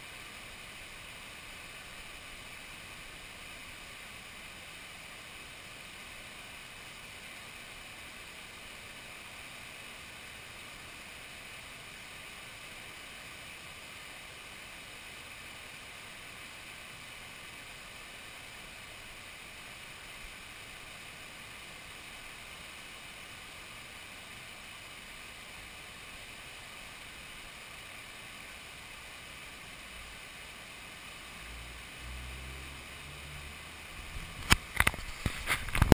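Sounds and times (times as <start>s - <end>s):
river water pouring over a weir: 0.0s - 35.9s.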